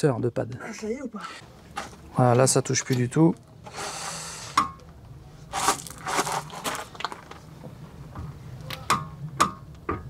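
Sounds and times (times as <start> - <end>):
footsteps crunching on gravel: 5.6 - 7.2.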